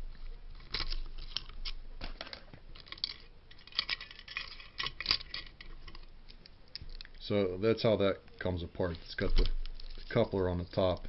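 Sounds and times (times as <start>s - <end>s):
metal toy parts clicking and scraping: 0.6s - 6.1s.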